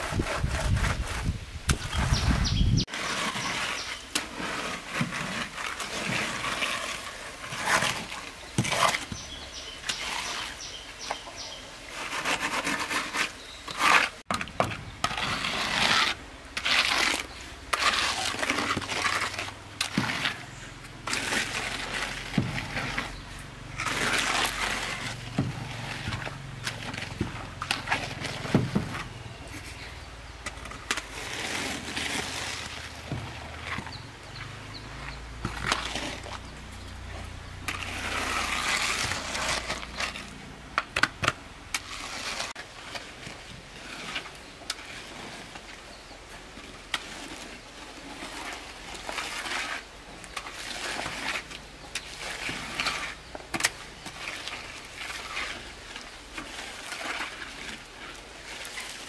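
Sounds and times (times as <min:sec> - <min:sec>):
float scraping wet concrete: 0:00.0 - 0:59.0.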